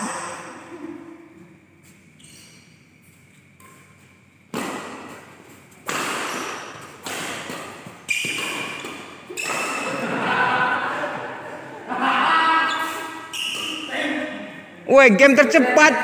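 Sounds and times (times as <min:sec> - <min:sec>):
rackets hitting shuttlecock: 0:03.6 - 0:10.0.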